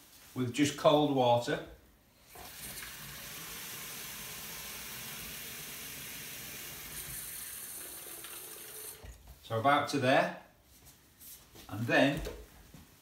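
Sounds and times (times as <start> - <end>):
tap water filling plastic bottle: 2.3 - 9.2.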